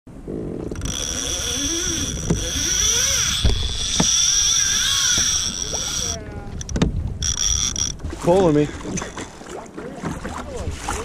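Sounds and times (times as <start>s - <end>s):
low wind noise: 0.1s - 9.6s
fishing reel drag whining: 0.7s - 9.4s
sharp knocks: 6.6s - 7.0s.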